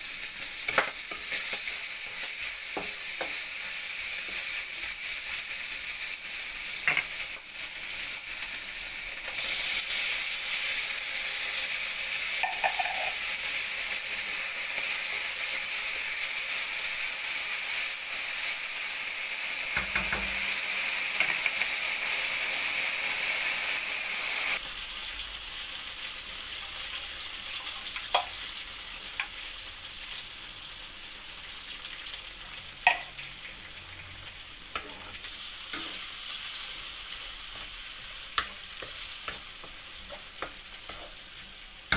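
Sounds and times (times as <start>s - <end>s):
food sizzling in a pan: 0.0s - 41.9s
utensil tapping on pan: 12.4s - 13.2s, 32.8s - 33.1s.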